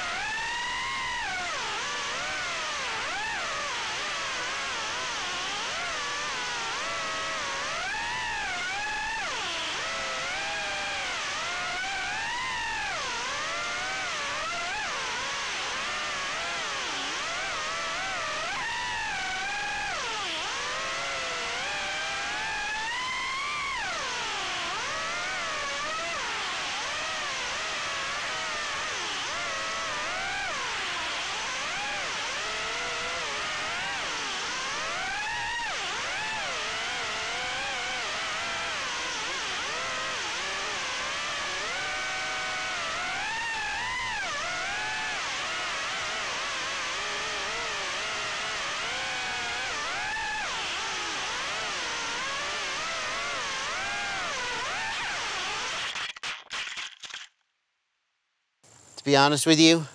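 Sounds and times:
drone motors whining: 0.0 - 56.1.

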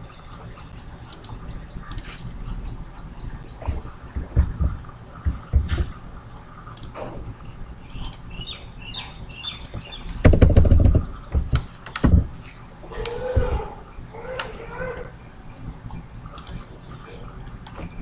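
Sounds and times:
mouse clicks: 1.0 - 3.6, 6.7 - 7.1, 7.9 - 8.3, 9.4 - 9.8, 16.3 - 16.7.

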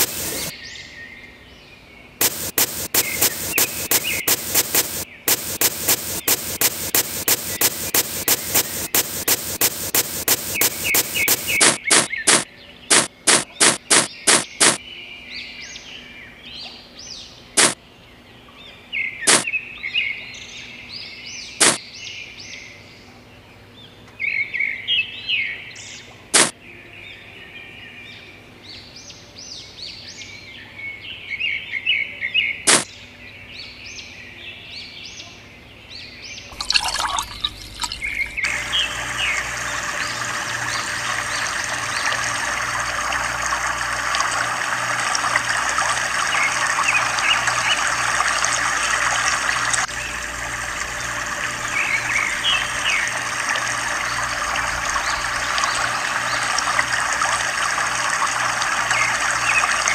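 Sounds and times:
birds chirping: 0.0 - 0.6, 2.2 - 14.8, 36.6 - 56.9
water pouring into pool: 36.6 - 59.9.

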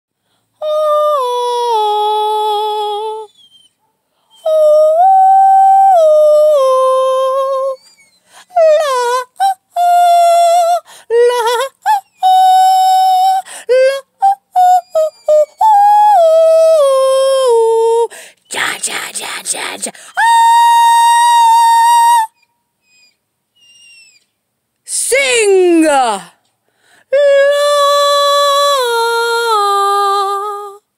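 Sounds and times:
person singing: 0.6 - 3.3, 8.5 - 22.4, 27.1 - 30.9
dog howling: 3.0 - 9.4, 11.4 - 17.9.

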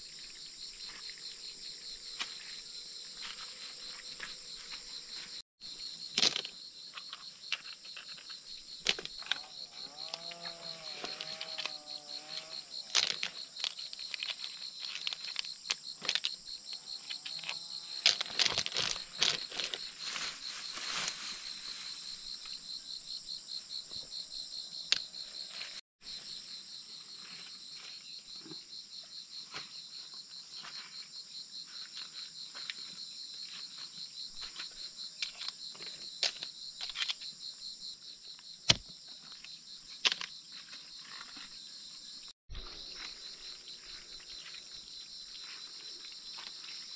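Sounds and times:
forest insects trilling: 0.0 - 46.9
hands rustling leaves and mud: 18.1 - 22.3.

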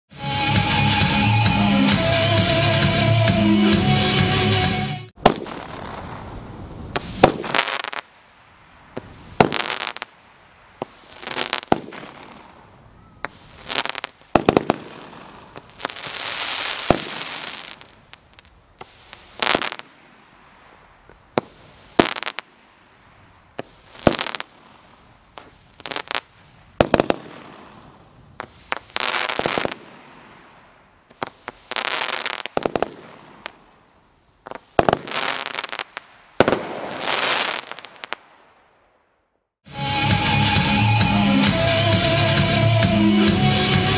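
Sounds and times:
fireworks hiss: 5.2 - 33.7, 34.4 - 38.4
fireworks shots cracking: 5.2 - 39.0.

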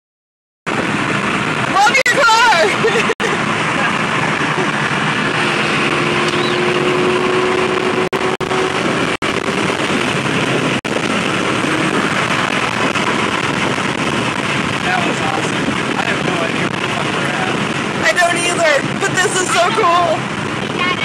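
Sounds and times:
wind and road noise inside car: 0.7 - 21.0.

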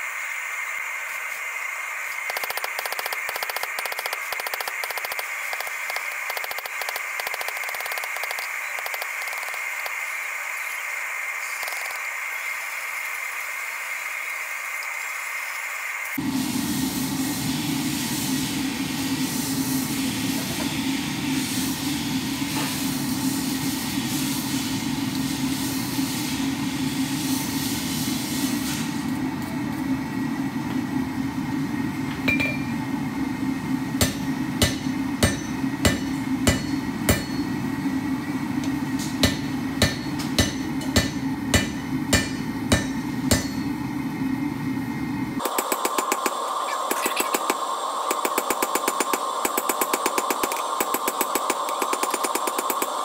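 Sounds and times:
hammer striking steel on anvil: 32.3 - 32.8, 34.0 - 37.6, 39.0 - 43.8.

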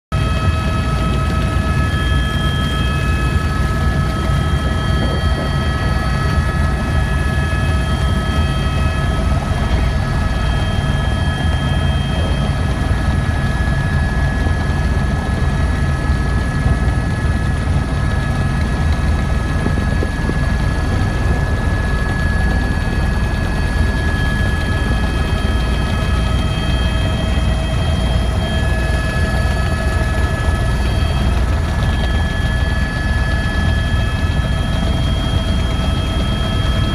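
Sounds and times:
helicopter rotor rumble: 0.1 - 36.9
high-pitched whines: 0.2 - 36.9.

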